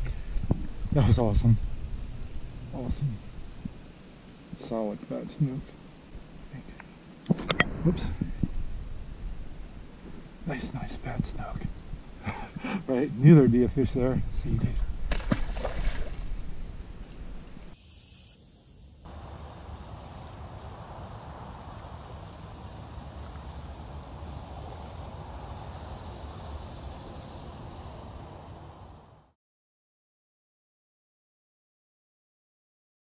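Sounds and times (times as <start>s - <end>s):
insects buzzing: 0.0s - 29.4s
creek water rushing: 7.5s - 17.7s.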